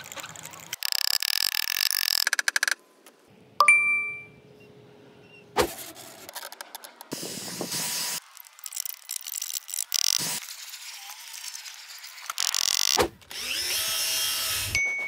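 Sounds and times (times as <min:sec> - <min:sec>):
rapid clicking: 0:00.0 - 0:02.8
sharp metallic ding: 0:03.6 - 0:04.4
hiss: 0:07.1 - 0:08.2.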